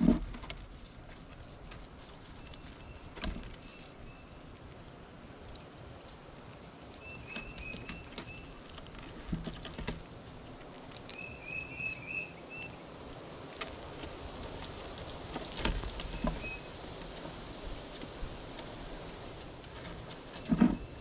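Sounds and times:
squirrel claws scratching on wood: 0.0 - 21.0
small bird chirping: 6.6 - 8.7, 10.9 - 12.8, 15.9 - 16.7.

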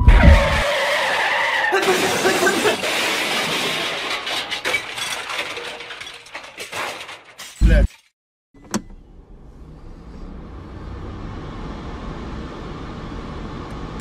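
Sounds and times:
crash clatter and rattles: 1.8 - 8.1.

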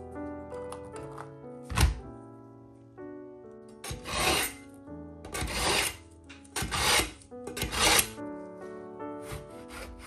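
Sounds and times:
knife rasping through sharpener: 3.8 - 4.6, 5.3 - 6.0, 6.6 - 8.2.

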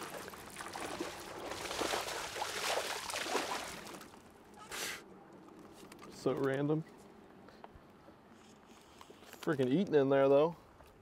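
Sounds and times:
fish splashing at water surface: 0.0 - 4.2.

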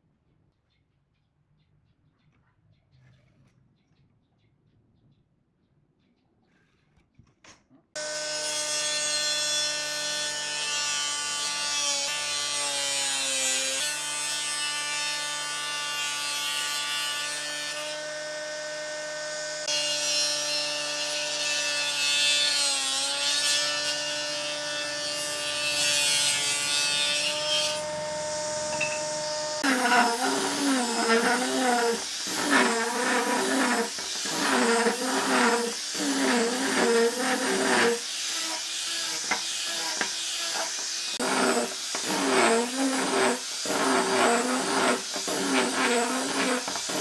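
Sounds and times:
table saw motor whine: 23.9 - 47.0.

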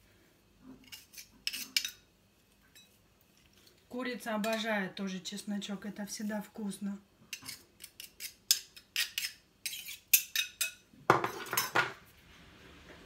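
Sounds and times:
knife scraping metal garlic press: 0.8 - 2.0, 7.3 - 10.7.

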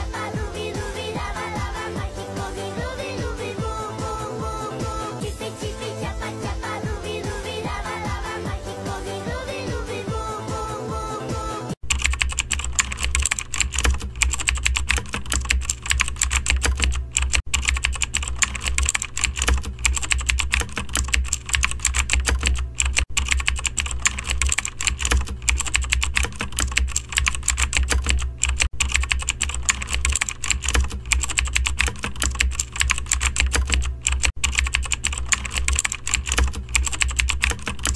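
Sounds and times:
computer keyboard typing: 11.8 - 37.9.

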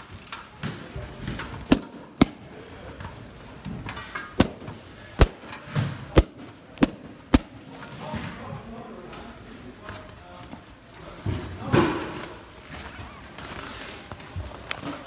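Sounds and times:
balloons popping: 4.4 - 7.6.

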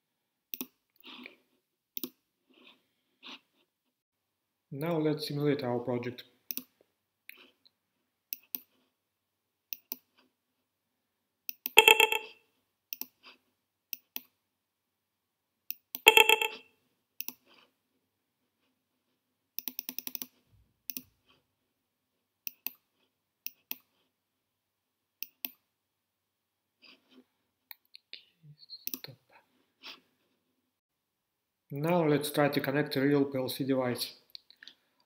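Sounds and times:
computer mouse clicking: 0.5 - 0.8, 2.0 - 2.2, 6.5 - 6.7, 8.3 - 8.7, 9.7 - 10.1, 12.9 - 13.2, 17.2 - 17.4, 19.6 - 21.1, 22.5 - 22.8, 23.4 - 23.9, 25.2 - 25.6.

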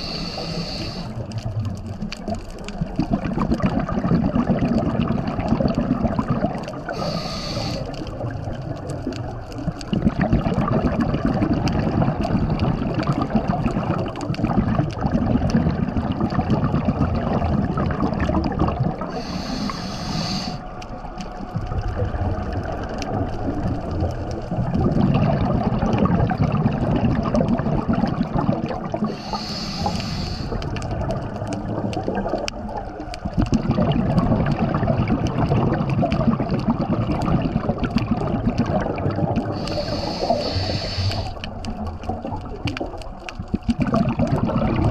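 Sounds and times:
regulator inhalation hisses: 0.0 - 1.2, 6.9 - 8.0, 19.1 - 20.7, 29.0 - 30.7, 39.6 - 41.4
bubbling of exhaled air: 0.0 - 44.9.

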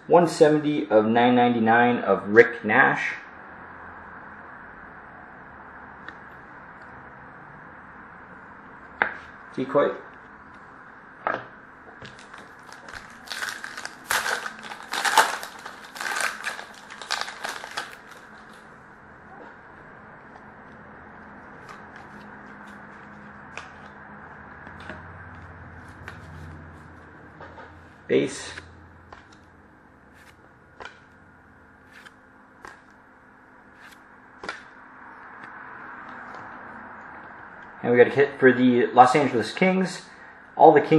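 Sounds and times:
card pack wrapper crinkling: 12.1 - 18.6.

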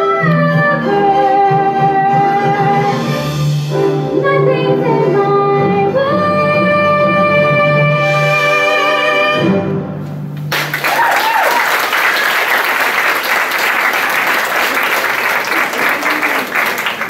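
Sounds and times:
audience applause: 10.5 - 17.0
person whooping: 10.8 - 12.4, 15.5 - 16.8.

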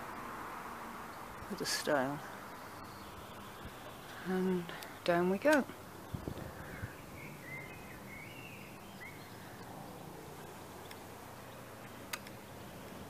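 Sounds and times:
faint bird chirps: 6.0 - 12.0.

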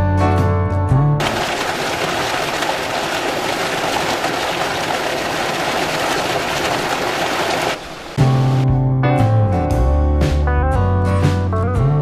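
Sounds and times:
water gushing into channel: 1.2 - 8.2.

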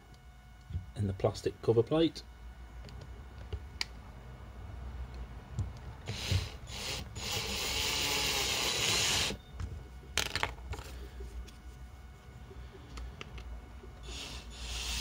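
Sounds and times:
drill boring through plastic: 6.0 - 9.4, 14.0 - 15.0.

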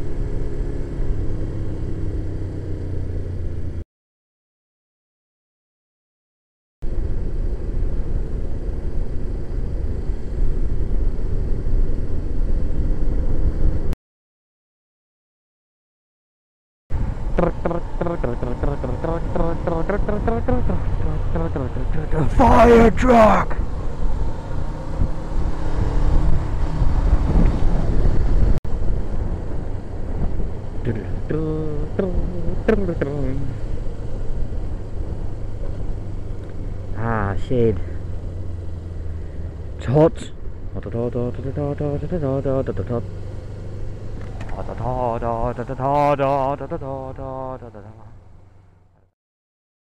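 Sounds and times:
motorcycle engine rumble: 0.0 - 3.8, 6.8 - 14.0, 16.9 - 49.0
wind rush on microphone: 6.8 - 13.9, 16.9 - 21.4, 22.1 - 32.7
wind on microphone: 23.5 - 31.3.

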